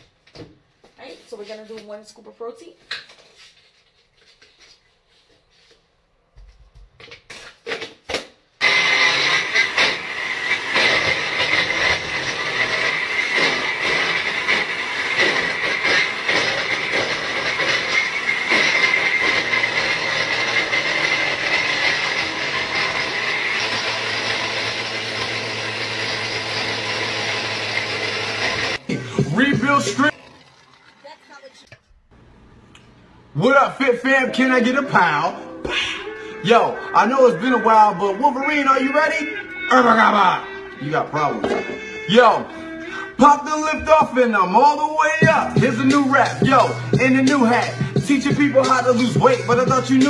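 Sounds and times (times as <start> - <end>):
blender crushing ice: 8.6 - 31.8, 45.2 - 50.0.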